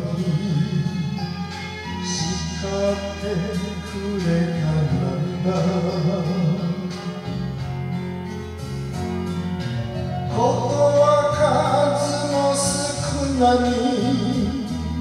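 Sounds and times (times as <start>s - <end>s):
man singing into microphone: 0.0s - 1.4s, 2.0s - 7.4s, 10.3s - 15.0s
karaoke backing track: 0.0s - 15.0s.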